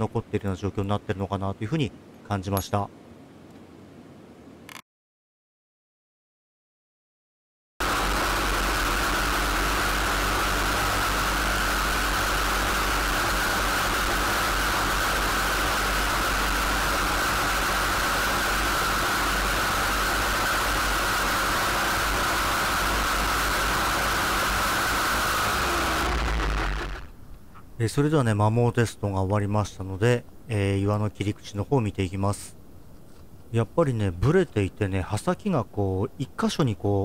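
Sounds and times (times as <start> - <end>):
brushcutter engine running: 7.8 - 27.1.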